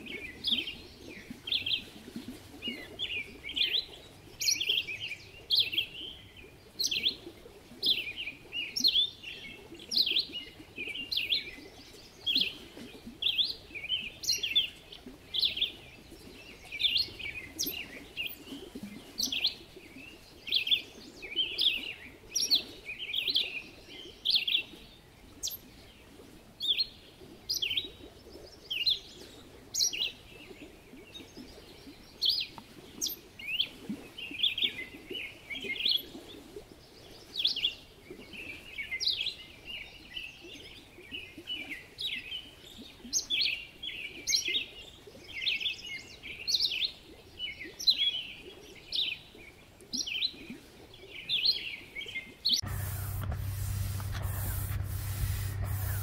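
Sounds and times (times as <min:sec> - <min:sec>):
bird chirping: 0:52.6 - 0:56.0.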